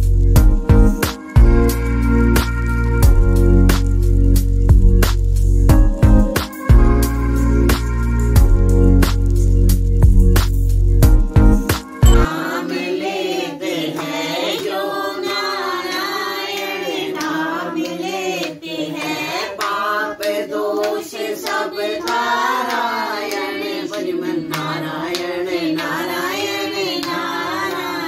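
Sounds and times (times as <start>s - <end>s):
hands clapping: 1.0s - 1.4s, 13.9s - 15.5s, 16.5s - 26.0s, 26.9s - 28.0s
group singing devotional song: 11.8s - 28.0s.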